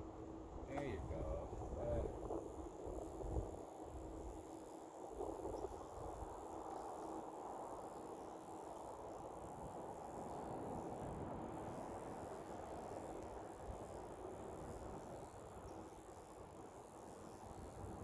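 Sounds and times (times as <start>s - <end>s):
wind buffeting microphone: 0.8s - 4.5s.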